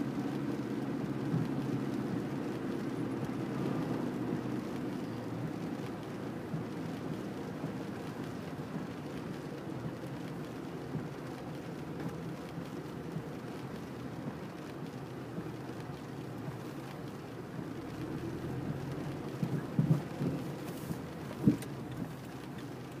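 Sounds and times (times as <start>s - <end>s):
car engine rumble: 0.0s - 23.0s
rain on car: 0.0s - 23.0s
wet tyre hiss: 20.5s - 21.5s.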